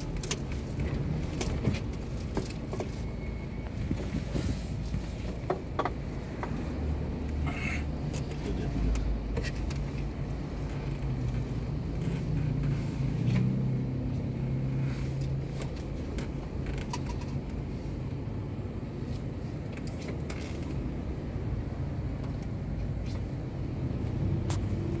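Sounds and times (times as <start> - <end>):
car engine hum and road noise: 0.0 - 25.0.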